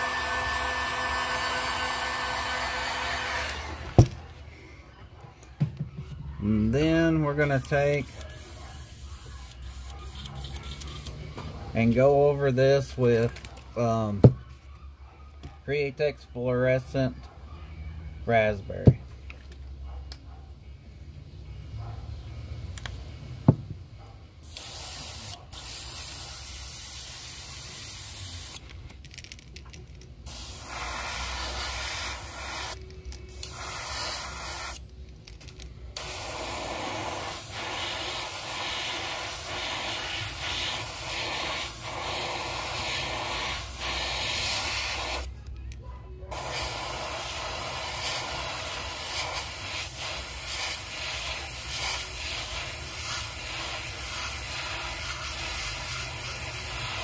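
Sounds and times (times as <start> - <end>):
airbrush hissing: 7.9 - 11.1, 24.5 - 28.6, 30.3 - 34.8, 36.0 - 45.3, 46.3 - 57.0.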